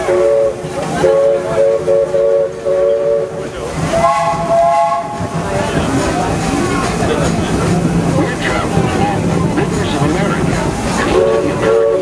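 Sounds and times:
steam locomotive chime whistle: 0.0s - 5.3s
train running: 0.0s - 12.0s.

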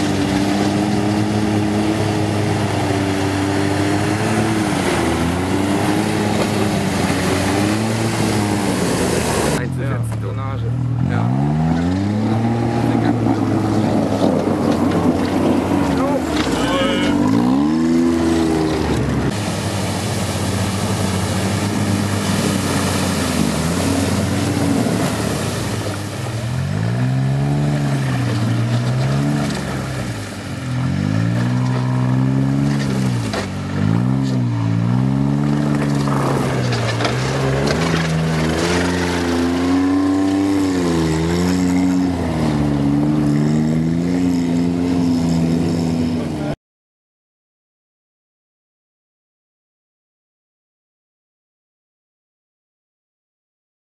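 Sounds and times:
vehicle engine revving: 0.0s - 46.6s.

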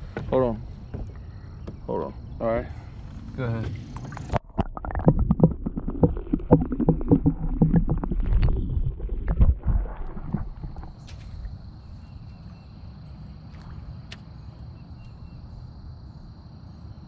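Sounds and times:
water sloshing and gurgling: 3.0s - 11.9s
low rumble: 3.2s - 11.0s.

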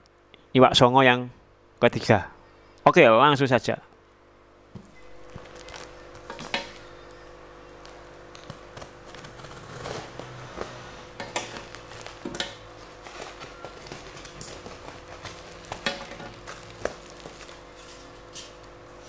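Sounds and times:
faint steady hum: 0.0s - 19.0s
scissors cutting tape and cardboard: 8.3s - 18.6s.

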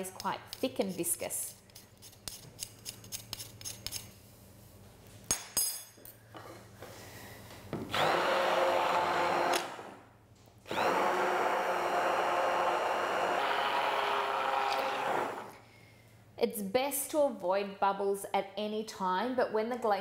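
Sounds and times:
stick blender running in liquid: 7.9s - 9.9s, 10.7s - 15.6s.

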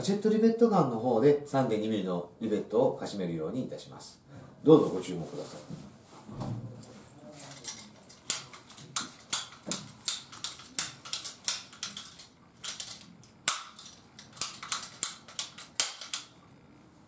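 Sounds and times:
hand rivet gun clicking: 8.3s - 16.3s.

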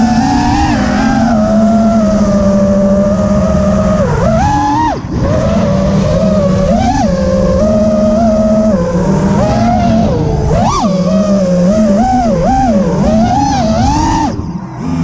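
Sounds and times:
quadcopter motors buzzing whine: 0.0s - 15.0s.

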